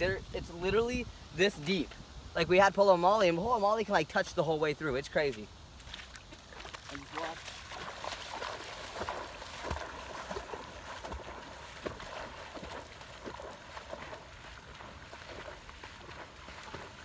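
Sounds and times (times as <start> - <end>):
footsteps splashing through water: 5.2 - 17.0.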